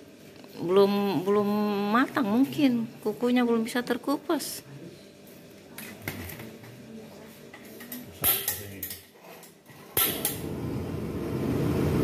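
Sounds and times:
gas burner flame rushing: 0:08.2 - 0:12.0
gas stove ignition click: 0:10.0 - 0:10.5.

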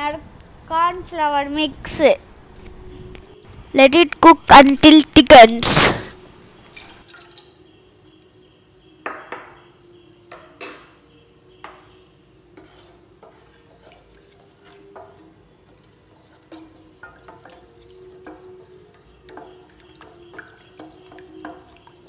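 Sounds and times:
spatula stirring in a saucepan: 0:11.9 - 0:22.0.

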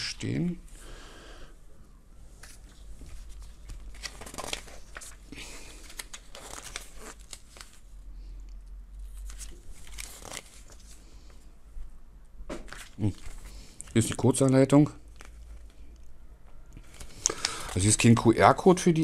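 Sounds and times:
paper rustling and crinkling: 0:02.4 - 0:07.9, 0:09.0 - 0:11.0, 0:12.7 - 0:15.9, 0:16.8 - 0:18.0.

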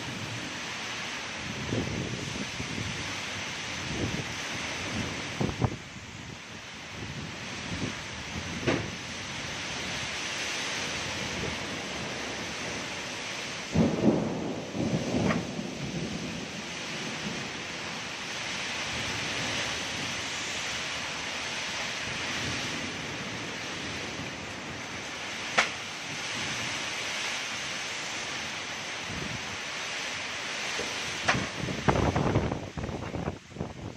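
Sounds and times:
heavy rain in strong wind: 0:00.0 - 0:33.9.

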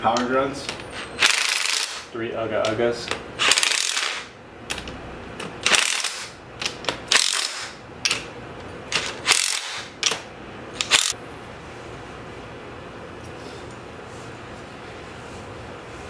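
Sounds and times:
impact wrench bursts: 0:01.0 - 0:02.1, 0:03.4 - 0:04.4, 0:05.6 - 0:07.8, 0:08.9 - 0:10.1, 0:10.8 - 0:11.2.

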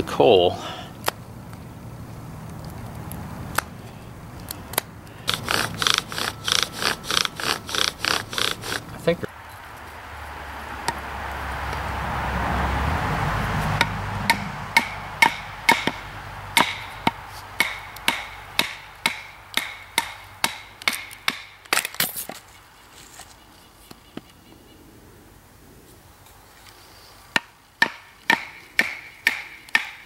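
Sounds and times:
rushing noise: 0:05.2 - 0:18.6.

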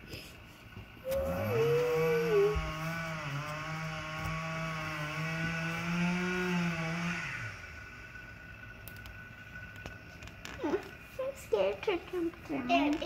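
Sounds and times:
chainsaw at full throttle: 0:01.1 - 0:07.6.

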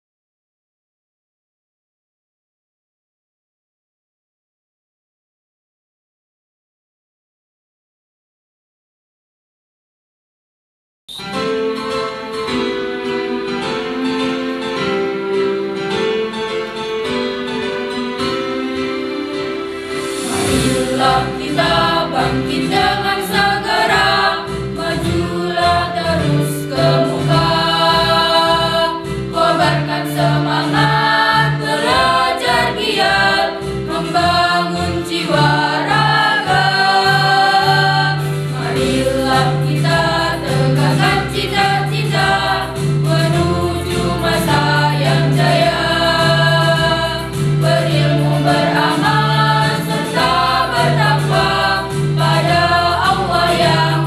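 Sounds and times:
children's choir singing: 0:11.1 - 0:54.0
electronic keyboard chords: 0:11.2 - 0:54.0.

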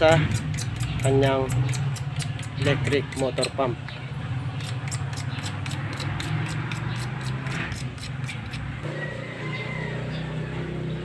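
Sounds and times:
regular ticking: 0:00.0 - 0:08.7.

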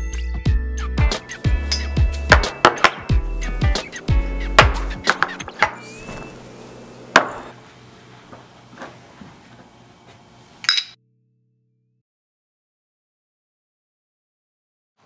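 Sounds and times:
background music: 0:00.0 - 0:05.8.

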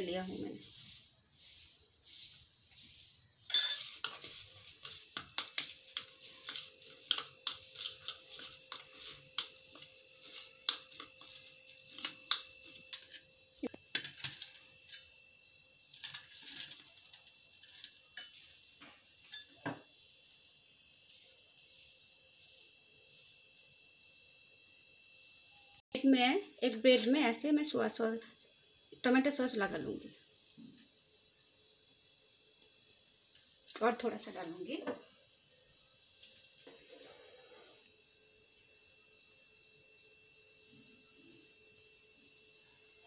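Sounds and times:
spoon clicking and scraping bowl: 0:03.4 - 0:15.1, 0:15.9 - 0:18.4.

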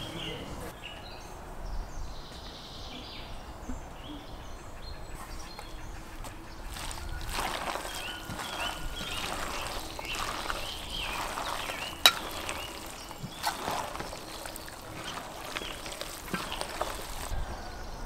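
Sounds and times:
hands squishing raw meat: 0:06.6 - 0:17.4.

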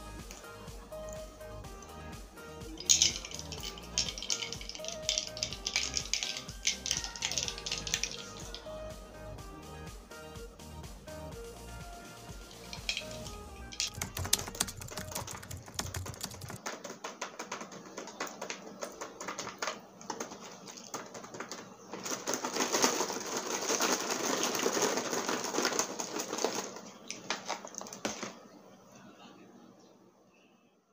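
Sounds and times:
plastic snack bag crinkling: 0:02.7 - 0:08.7, 0:12.4 - 0:28.4.

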